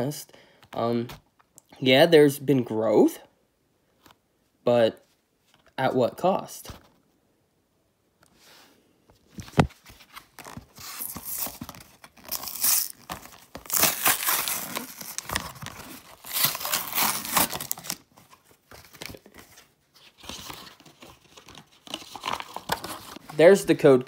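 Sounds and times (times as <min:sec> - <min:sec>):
cardboard ripping: 0:10.1 - 0:19.2.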